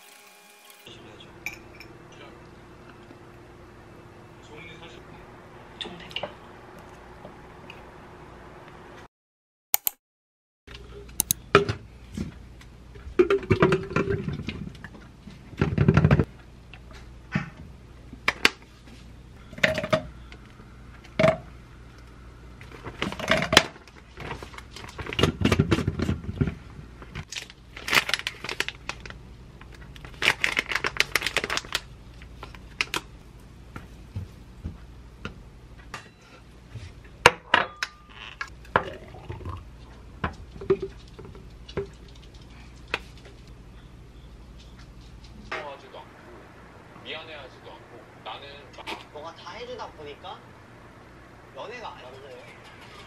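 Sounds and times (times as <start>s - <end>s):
plastic bag rustling: 27.3s - 29.2s, 29.8s - 33.1s.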